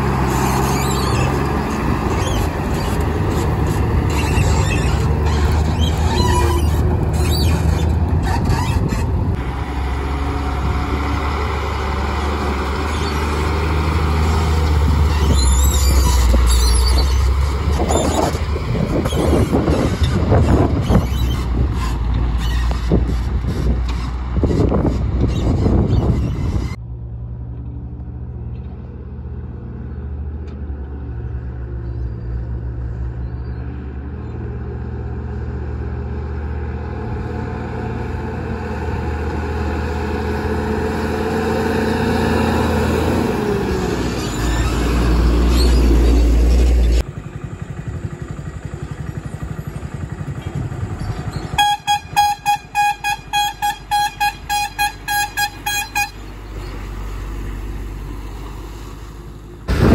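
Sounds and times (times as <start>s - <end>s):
diesel truck engine rumbling: 0.0s - 59.9s
vehicle horn short toots: 51.5s - 56.3s.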